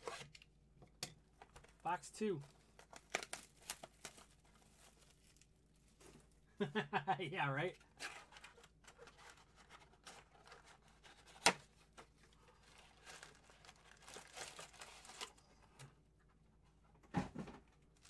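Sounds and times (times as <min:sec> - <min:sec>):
card wrappers crinkling and tearing: 0:01.4 - 0:06.1, 0:07.9 - 0:15.8.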